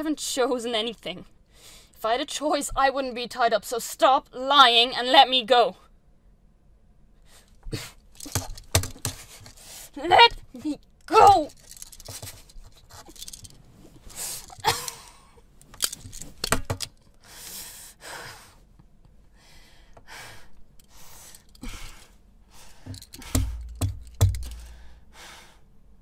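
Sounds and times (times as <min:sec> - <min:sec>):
woman panting and gasping: 0:17.2 - 0:18.7, 0:19.3 - 0:25.7
dull thumps: 0:22.8 - 0:25.0.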